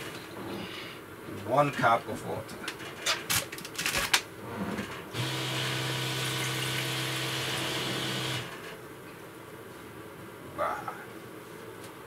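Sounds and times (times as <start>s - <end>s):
water pump humming: 5.2s - 8.6s.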